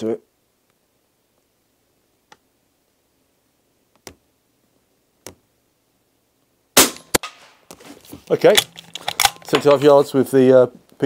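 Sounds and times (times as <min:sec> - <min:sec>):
muffled suppressed gunshot: 0:06.8 - 0:07.4.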